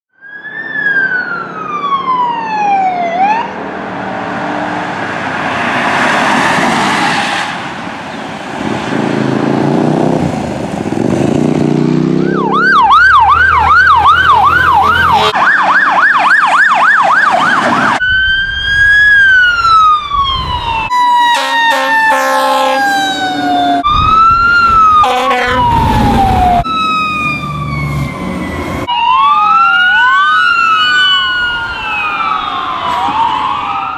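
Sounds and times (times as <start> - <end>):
emergency vehicle siren wail and yelp: 0.1 - 8.1, 12.0 - 33.9
vehicle engine and road noise passing: 0.3 - 18.0, 22.4 - 30.1.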